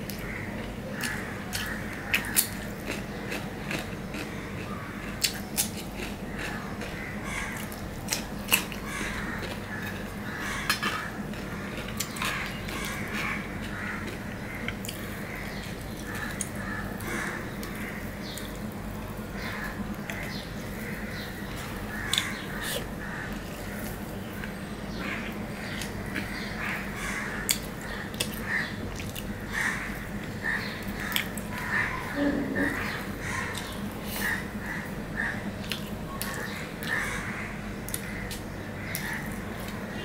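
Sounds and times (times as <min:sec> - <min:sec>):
crunching cucumber bites: 0:00.0 - 0:18.7
steady low hum: 0:00.0 - 0:40.0
chewing: 0:00.1 - 0:07.0, 0:27.5 - 0:29.3.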